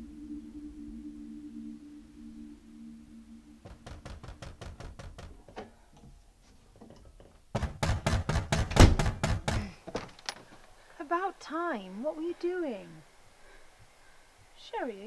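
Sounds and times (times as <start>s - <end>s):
low steady hum: 0.0s - 7.6s, 8.9s - 15.0s
knocking on wooden door: 3.6s - 5.4s, 7.5s - 9.6s.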